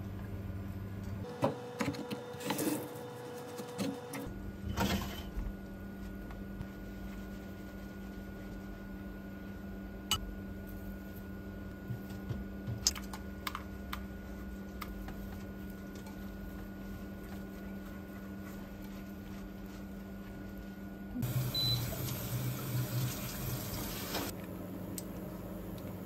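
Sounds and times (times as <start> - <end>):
steady low hum: 0.0 - 23.2.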